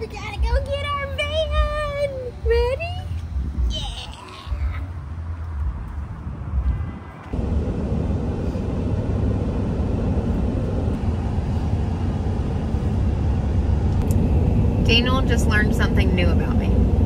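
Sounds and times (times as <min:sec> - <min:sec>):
road and engine noise in cab: 0:00.0 - 0:17.0
wind buffeting microphone: 0:00.4 - 0:04.1.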